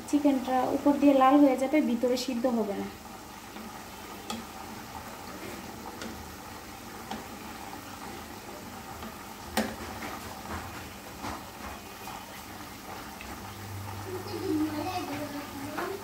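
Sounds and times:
oil bubbling sizzle: 0.0 - 16.0
oil pops and crackles: 9.0 - 11.8.

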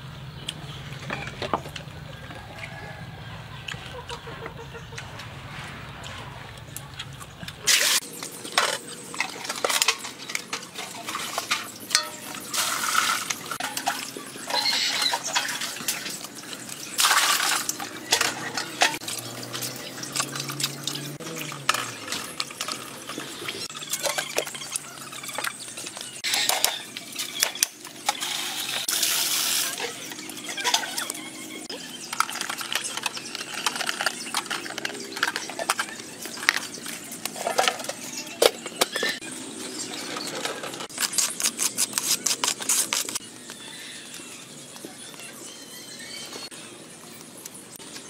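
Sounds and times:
water splashing in a basin: 7.6 - 27.2.

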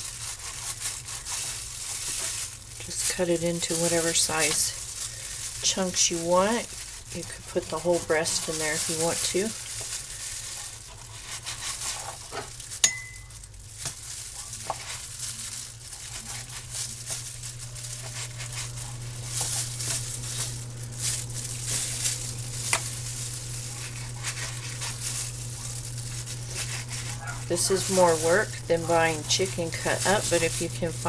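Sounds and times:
plastic gloves rustling: 0.0 - 31.0
low hum: 16.0 - 31.0
knife slicing raw meat: 26.4 - 29.2.

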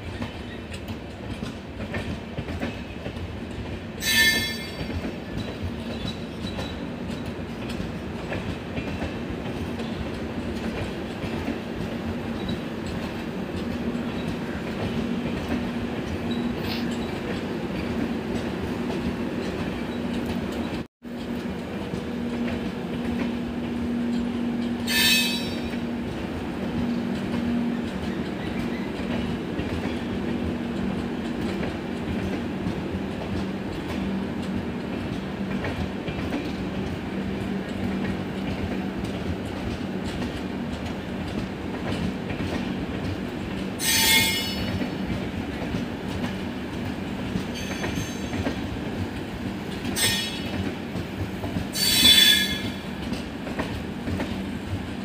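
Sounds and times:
train wheels rumbling on rails: 0.0 - 55.0
high-pitched wheel squeals: 4.0 - 4.8, 24.9 - 25.6, 43.8 - 44.6, 51.8 - 52.7.

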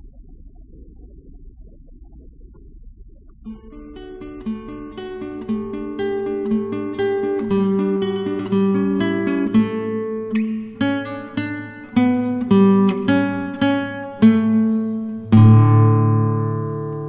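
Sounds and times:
plucked guitar tune: 3.5 - 17.0.

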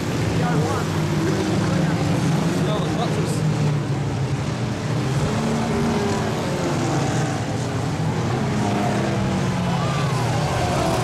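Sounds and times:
racing car engines passing: 0.0 - 11.0.

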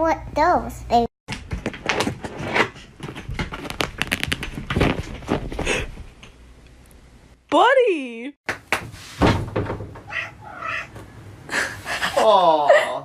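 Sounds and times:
rustling scratching and clicking: 1.6 - 5.5.

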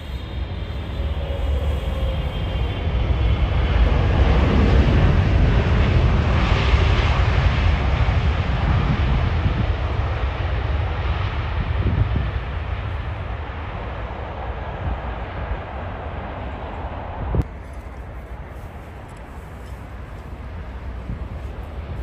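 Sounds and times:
deep rumble: 0.0 - 17.5
jet engines landing: 0.0 - 22.0.

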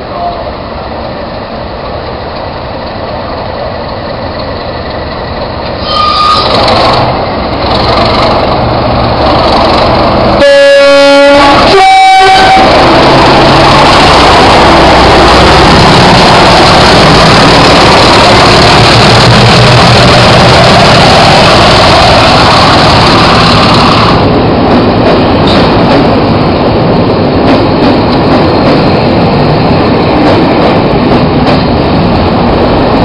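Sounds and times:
diesel locomotive engines working hard: 0.0 - 33.0
two-tone train horn: 5.8 - 6.6, 10.4 - 12.9.

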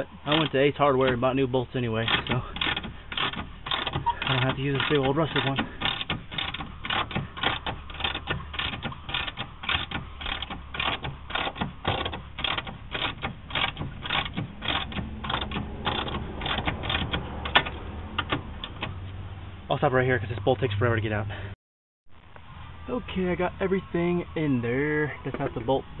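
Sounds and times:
ratchet wrench clicking: 2.0 - 18.8.

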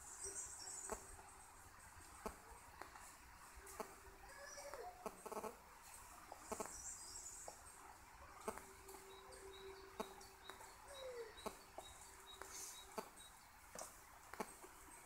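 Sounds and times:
faint steady tone: 0.0 - 15.0
faint bird chirps: 3.8 - 5.6, 8.4 - 13.4.

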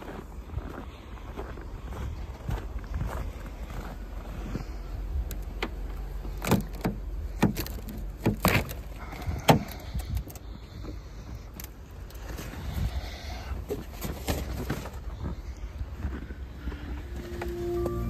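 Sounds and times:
steady low rumble: 0.0 - 14.0, 14.8 - 18.0
car door clicks and knocks: 6.4 - 8.8.

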